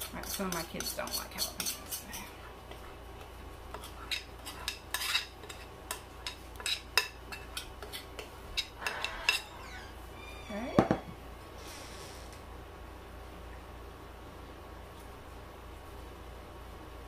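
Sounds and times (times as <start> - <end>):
metal spoon scraping ceramic bowl: 0.0 - 2.3, 3.7 - 9.6.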